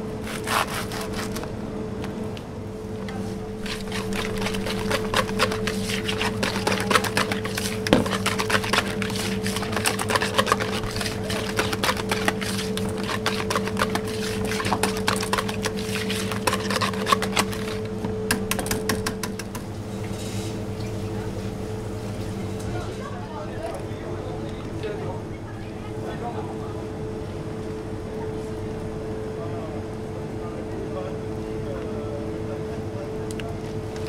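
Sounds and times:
steady low hum: 0.0s - 34.0s
whisk beating cream in bowl: 3.6s - 17.9s.

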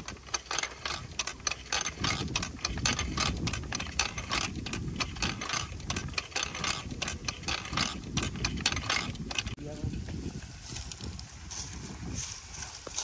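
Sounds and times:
winch drum turning: 0.0s - 9.6s
wire cable clicking and rattling: 0.0s - 11.3s.

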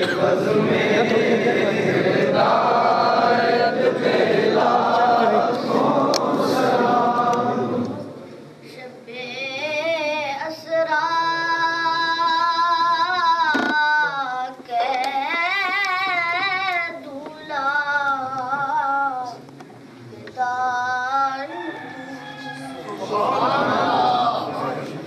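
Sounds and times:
boy singing into a microphone: 8.6s - 19.5s, 20.3s - 21.6s.

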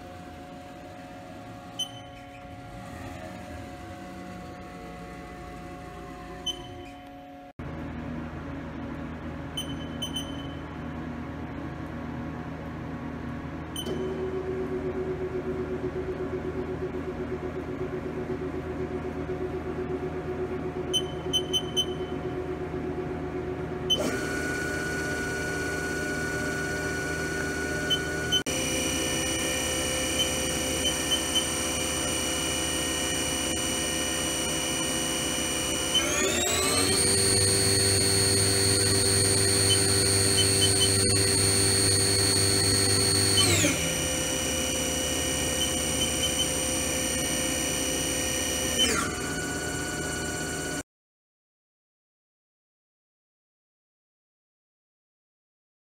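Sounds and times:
mill spindle motor whine: 0.0s - 50.8s
short electronic beeps: 1.8s - 2.3s, 6.4s - 7.0s, 9.6s - 10.6s, 13.8s - 14.2s, 20.9s - 22.1s.

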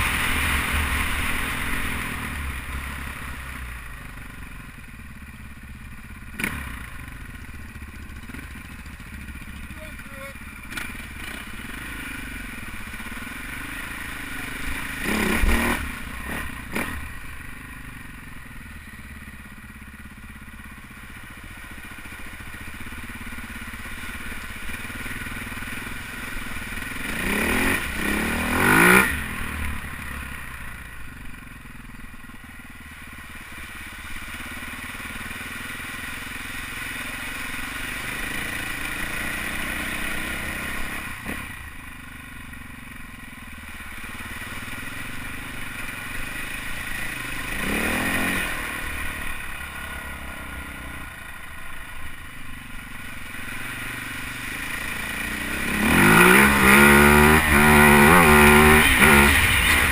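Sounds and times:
dirt bike engine revving: 6.4s - 7.0s, 9.2s - 17.3s, 22.8s - 30.4s, 35.7s - 41.8s, 43.8s - 59.9s.

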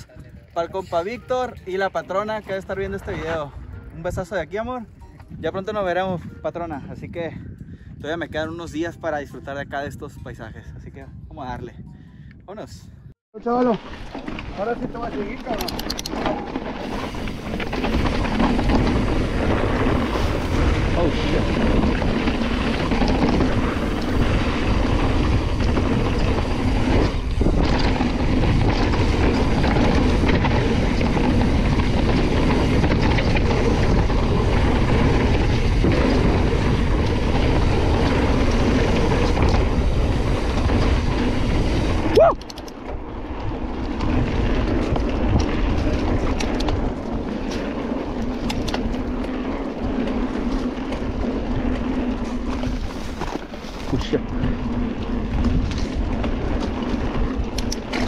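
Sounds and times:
bike tyres rolling and rattling: 0.0s - 9.8s, 13.4s - 58.0s.

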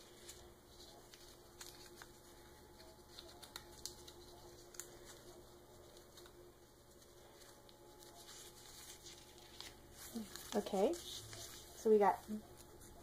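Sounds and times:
paper crinkling and rustling: 0.0s - 13.0s
small paper ticks: 1.1s - 2.1s, 2.8s - 5.3s.

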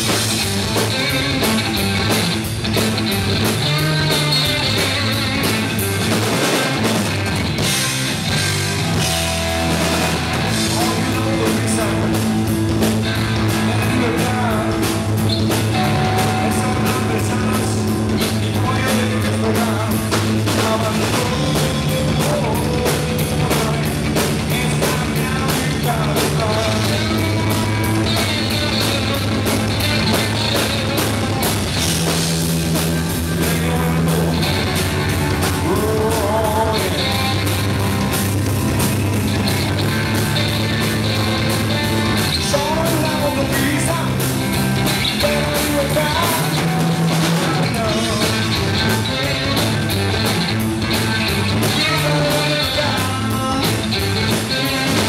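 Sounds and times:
distorted electric guitar: 0.0s - 55.0s
drum kit: 0.0s - 55.0s
man singing into microphone: 10.6s - 12.2s, 13.5s - 15.0s, 15.8s - 29.6s, 33.3s - 34.6s, 35.6s - 37.4s, 42.4s - 44.3s, 45.0s - 49.8s, 51.7s - 53.8s.

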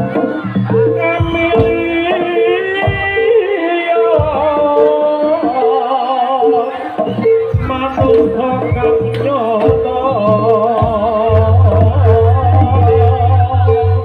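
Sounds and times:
wavering melody line: 0.0s - 14.0s.

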